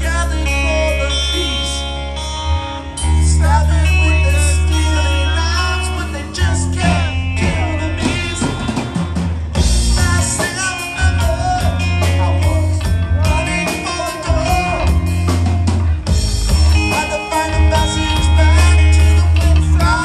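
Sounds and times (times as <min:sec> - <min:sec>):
bass line: 0:00.0 - 0:20.0
electric guitars: 0:00.0 - 0:20.0
drum kit: 0:05.9 - 0:20.0.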